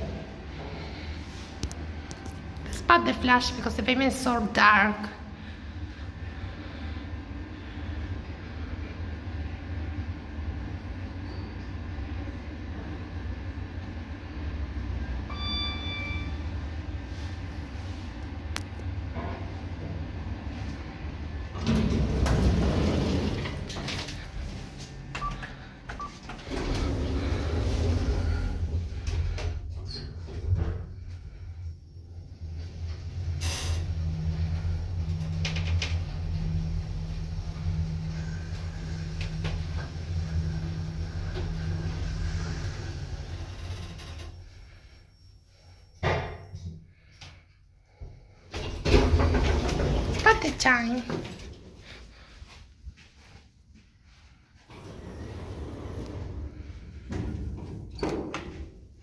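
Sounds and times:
elevator doors sliding open: 15.2 - 47.1, 48.4 - 52.0, 54.6 - 59.0
short high beeps: 15.3 - 16.4.

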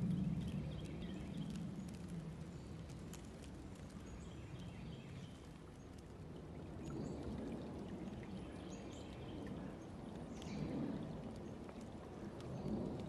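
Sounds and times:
stream flowing and gurgling: 4.9 - 13.0.

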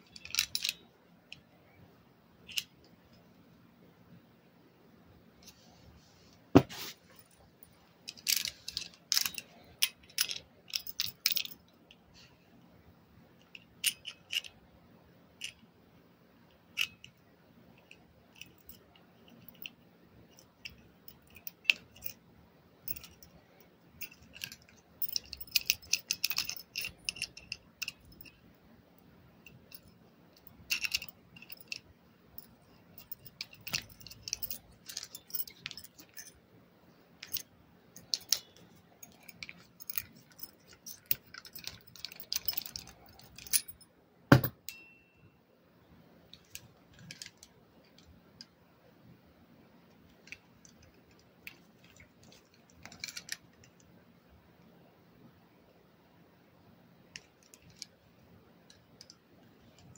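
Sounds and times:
key scraping in handcuff bolt: 0.0 - 0.8, 8.1 - 11.7, 13.4 - 14.6, 17.8 - 22.2, 22.9 - 28.4, 29.4 - 36.4, 37.2 - 44.9, 50.2 - 53.8
small metallic clicks: 0.0 - 1.5, 2.4 - 3.2, 7.6 - 12.1, 13.4 - 14.7, 15.4 - 15.7, 16.5 - 22.2, 22.8 - 36.4, 37.2 - 45.3, 46.3 - 48.6, 49.9 - 53.9, 57.1 - 58.0, 58.6 - 59.9.

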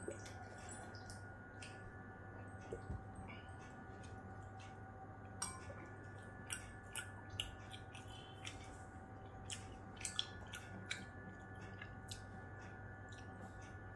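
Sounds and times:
faint electrical hum: 0.0 - 13.9
chewing and mouth sounds: 5.6 - 13.7.

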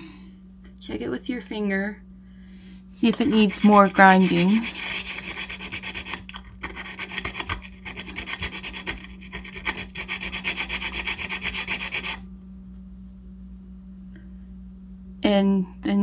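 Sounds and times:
stone scraping glazed pottery: 3.0 - 12.2.

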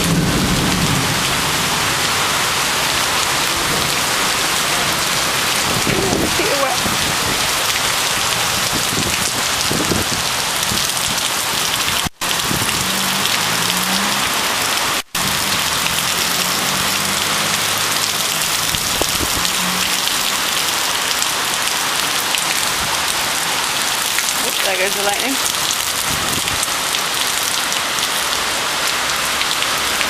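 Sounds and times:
heavy rain pouring: 0.0 - 30.0.

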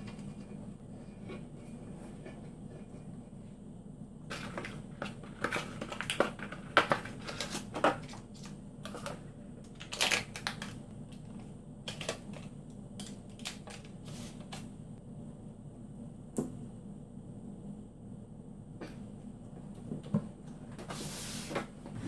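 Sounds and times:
steady low hum: 0.0 - 22.0
plastic packaging crinkling: 4.3 - 10.8.

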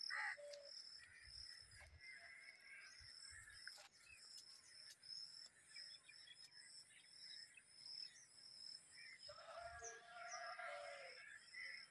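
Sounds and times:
bird calls: 0.0 - 8.3.

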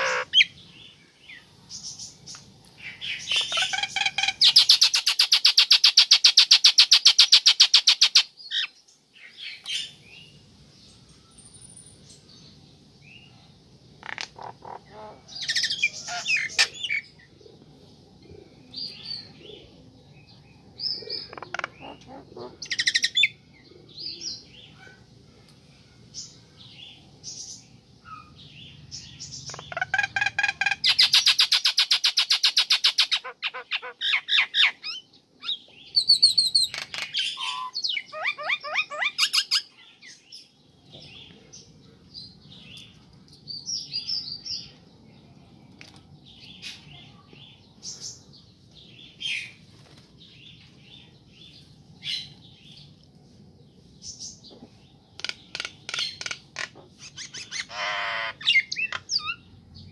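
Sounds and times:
myna calling: 0.0 - 0.5, 55.6 - 59.4.

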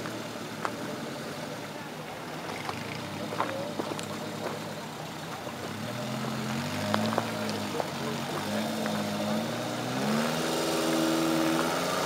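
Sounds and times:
car engine revving: 0.0 - 12.0.

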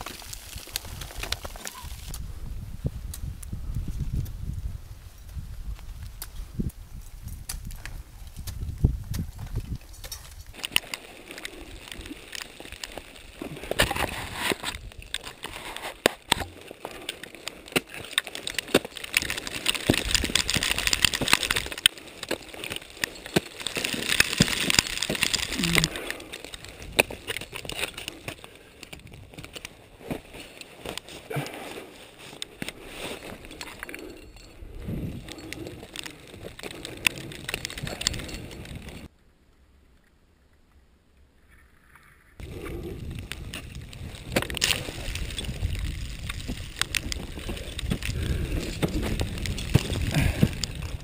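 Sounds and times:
scraping on snow and rock: 0.0 - 39.1, 41.6 - 51.0
carabiners and ice tools clicking: 7.3 - 39.1, 42.4 - 51.0
gloves and clothing rustling: 7.7 - 39.1.

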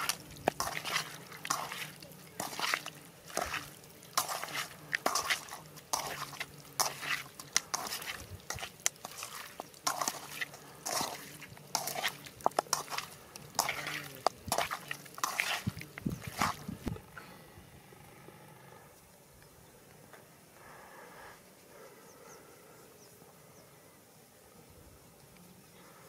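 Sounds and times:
wet squelches of mixing meat: 0.0 - 17.0.

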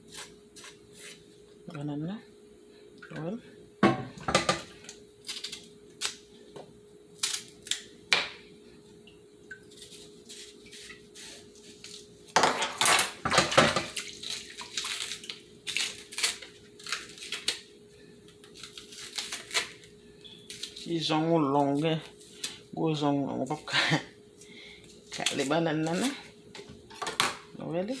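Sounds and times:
knife scraping plantain peel: 0.0 - 1.2, 9.7 - 12.1, 14.3 - 17.6, 18.4 - 20.9
faint steady hum: 0.0 - 28.0.

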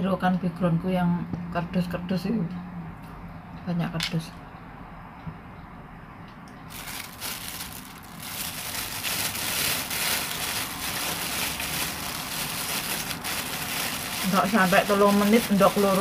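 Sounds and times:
plastic bag crinkling: 6.7 - 16.0.

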